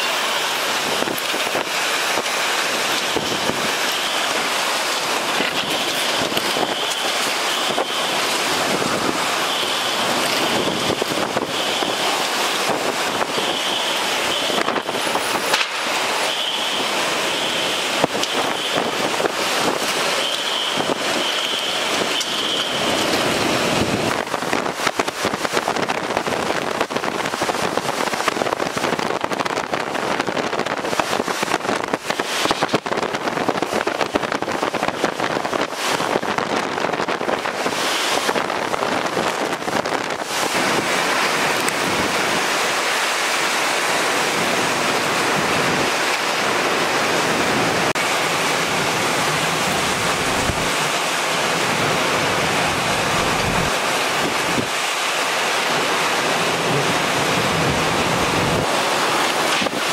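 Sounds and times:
heavy rain: 0.0s - 59.9s
strong wind gusting: 0.0s - 59.9s
wind buffeting microphone: 21.8s - 43.2s, 47.2s - 59.9s.

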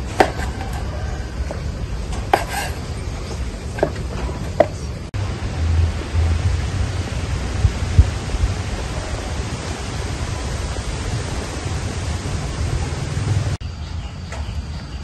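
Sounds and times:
steady hiss: 0.0s - 13.6s
low rumbling: 0.0s - 13.8s.

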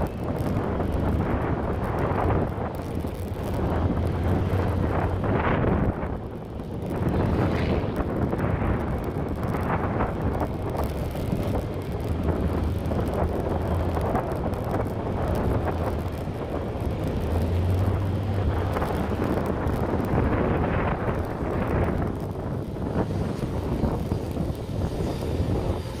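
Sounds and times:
motorcycle engine hum: 0.0s - 26.0s
wind buffeting microphone: 0.0s - 26.0s.

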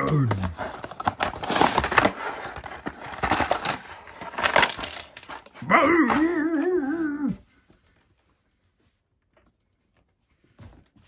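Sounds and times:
cardboard and plastic packaging rustling: 0.0s - 6.8s.

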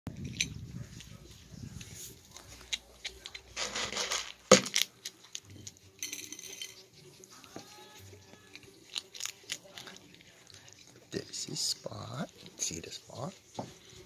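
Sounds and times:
kibble rattling against a plate: 2.4s - 7.0s.

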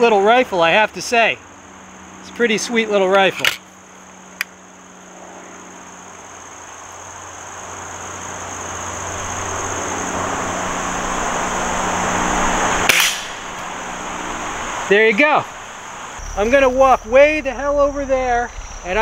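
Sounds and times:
high insect drone: 0.0s - 19.0s
air rifle shot: 12.9s - 13.6s.

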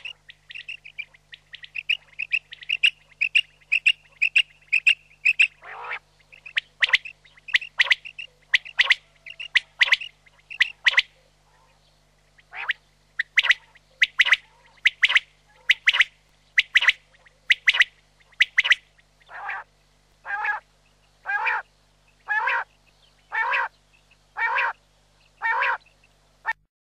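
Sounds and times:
quail calling: 0.0s - 24.8s, 25.4s - 26.6s.

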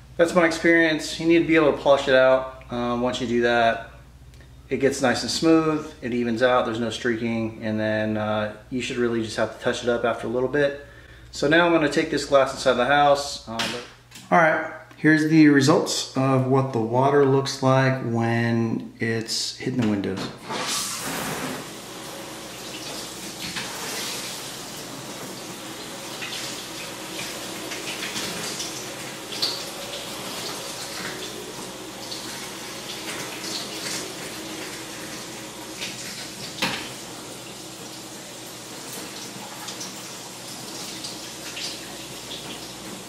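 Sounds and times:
shower spray on glass door: 20.4s - 43.0s.

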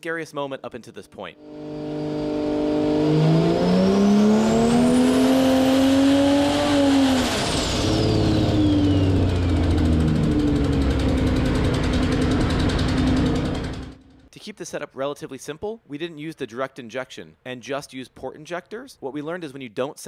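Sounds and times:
engine revving under load: 1.4s - 14.3s.

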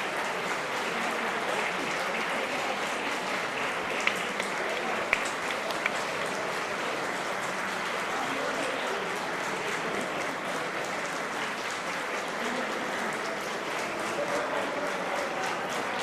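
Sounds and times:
people clapping: 0.0s - 16.0s.

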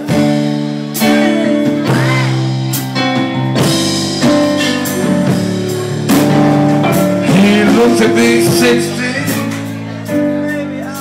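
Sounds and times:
live blues band playing: 0.0s - 11.0s
electric guitar bent notes: 4.2s - 10.0s.

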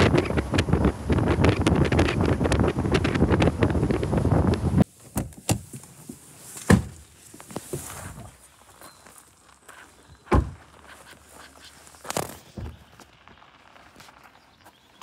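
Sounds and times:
wind rushing over microphone: 0.0s - 4.9s.

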